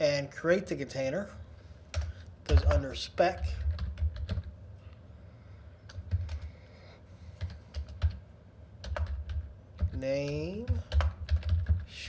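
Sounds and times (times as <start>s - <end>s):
typing on computer keyboard: 1.9s - 2.8s, 3.4s - 4.5s, 5.9s - 6.5s, 7.4s - 8.2s, 8.8s - 11.9s.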